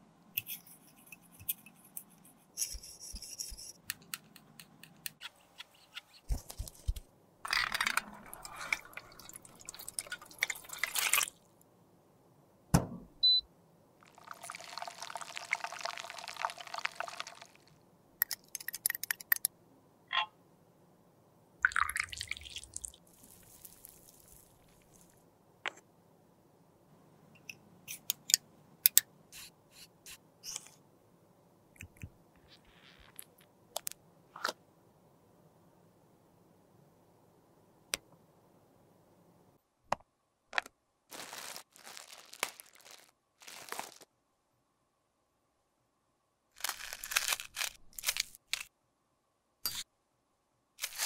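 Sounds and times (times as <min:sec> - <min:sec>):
plastic parts clicking and scraping: 0:03.8 - 0:11.2, 0:46.6 - 0:48.7
sharp knock: 0:12.7 - 0:13.1.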